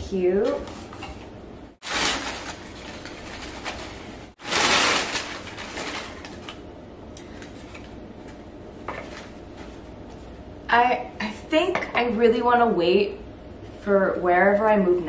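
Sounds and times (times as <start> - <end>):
packing paper rustling: 1.8 - 6.6.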